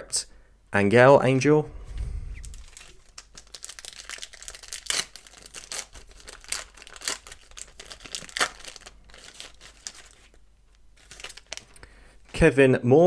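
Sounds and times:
wrapper crinkling and tearing: 2.4s - 11.9s.

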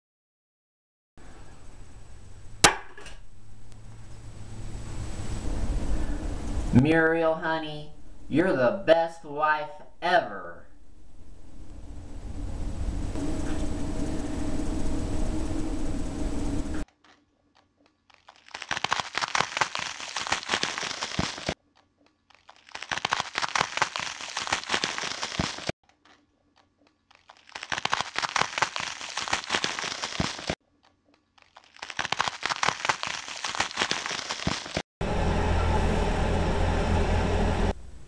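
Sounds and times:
steady low hum: 7.9s - 8.4s, 10.6s - 16.8s, 35.0s - 38.0s
crunching dry toast: 17.0s - 34.8s.

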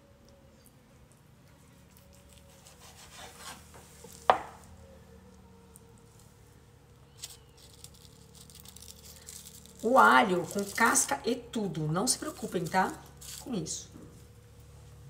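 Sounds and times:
knife scraping on board: 2.6s - 4.4s
knife knocking on board: 4.3s - 4.6s.

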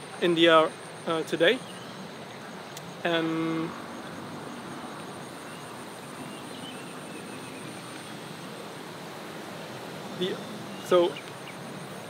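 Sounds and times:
insects trilling: 0.0s - 12.0s
rushing background noise: 0.0s - 12.0s.

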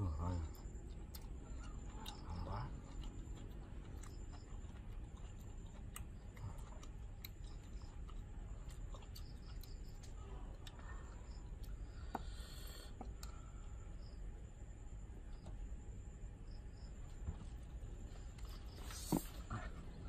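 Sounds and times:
low hum of pleasure: 0.0s - 20.0s
person chewing food: 0.2s - 13.4s.

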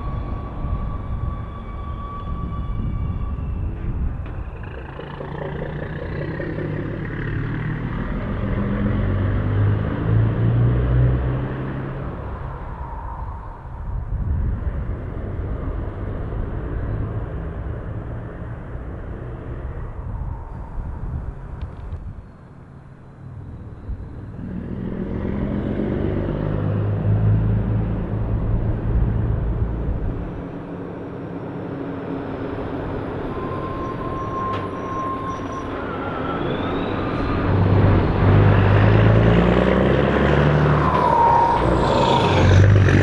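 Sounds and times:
rising turbo whistle: 0.0s - 9.6s, 11.0s - 15.2s, 17.9s - 21.7s, 31.9s - 43.0s
truck engine pulling away: 0.0s - 21.7s, 23.2s - 43.0s.

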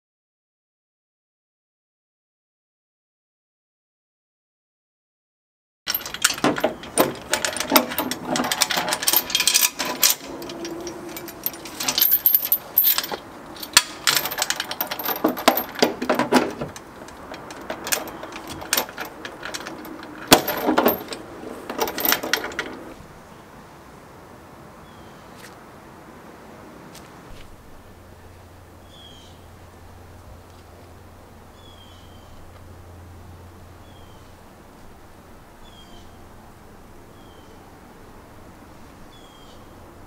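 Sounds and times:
metal chain clinking: 5.9s - 23.0s.

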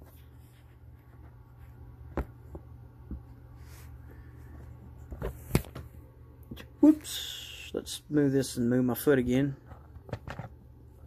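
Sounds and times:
faint handling and rustling: 0.0s - 6.0s
steady low hum: 0.0s - 11.0s.

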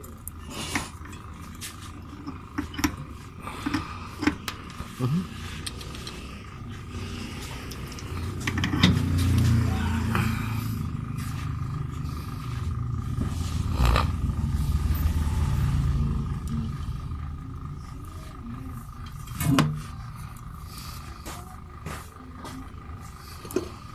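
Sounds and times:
low rumble: 5.6s - 23.9s.

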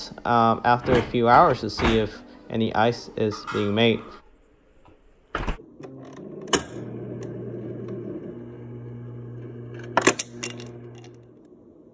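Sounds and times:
ice dispenser motor hum: 5.6s - 11.9s.

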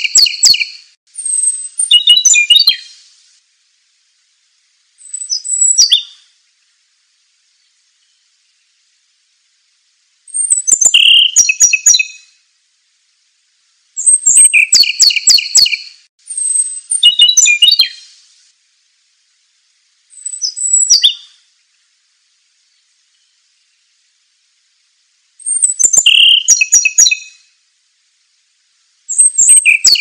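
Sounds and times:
songbird singing: 0.0s - 3.2s, 4.5s - 12.5s, 13.9s - 18.3s, 19.7s - 27.6s, 28.2s - 30.0s.

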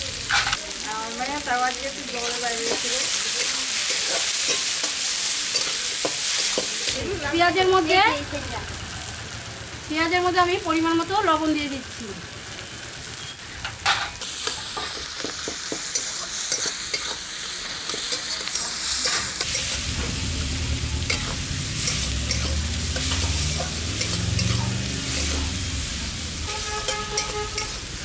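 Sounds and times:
onions sizzling in hot oil: 0.0s - 28.0s
metal spatula scraping a pan: 16.0s - 17.2s, 17.9s - 19.8s, 21.1s - 25.6s, 26.4s - 28.0s
low rumble: 19.6s - 26.5s.

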